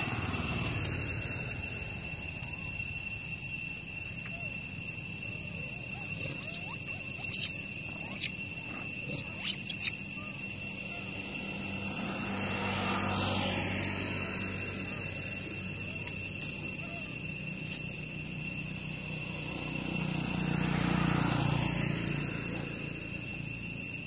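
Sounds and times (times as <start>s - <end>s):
motorbike passing: 0.0s - 2.8s, 10.8s - 17.1s, 18.5s - 23.9s
high insect drone: 0.0s - 24.0s
monkeys squeaking: 4.2s - 11.5s, 14.8s - 18.1s.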